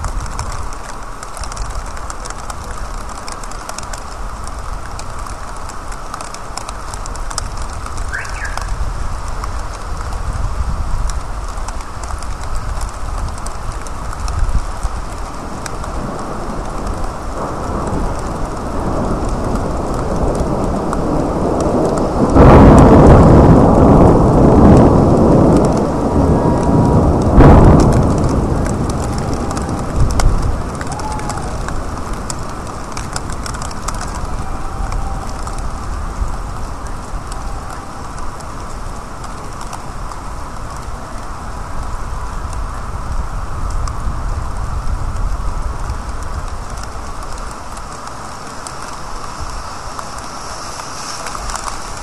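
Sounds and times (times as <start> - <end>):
rolling thunder: 0.0 - 52.0
steady rain: 0.0 - 52.0
sharp thunder crack: 15.4 - 39.0.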